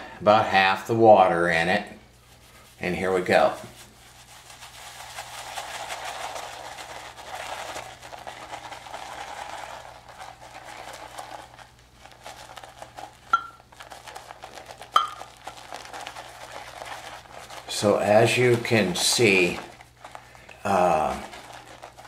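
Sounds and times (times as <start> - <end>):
shaving brush swishing lather: 2.2 - 22.0
sharp clinks on ceramic mug: 13.4 - 13.6.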